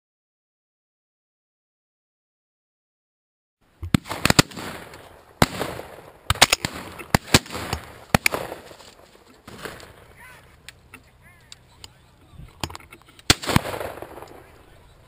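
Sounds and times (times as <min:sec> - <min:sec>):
shotgun shots echoing: 0:03.9 - 0:10.2, 0:13.2 - 0:14.9.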